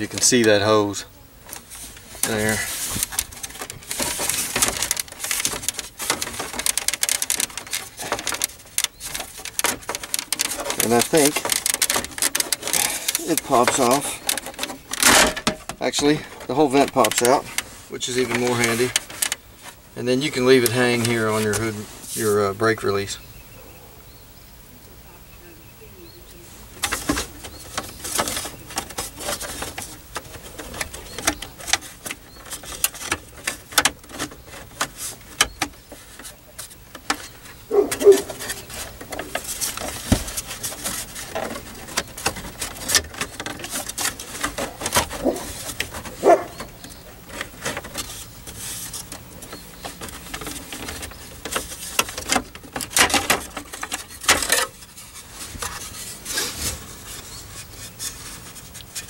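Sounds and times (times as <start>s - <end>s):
plastic cover clicking and rubbing: 1.4s - 22.4s, 26.8s - 59.0s.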